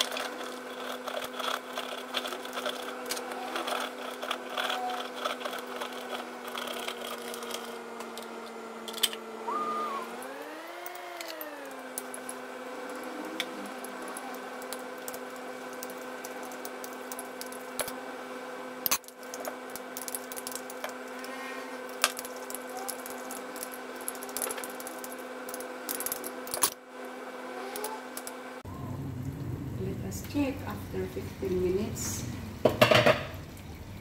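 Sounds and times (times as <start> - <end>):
hum of held tones: 8.9 - 17.9.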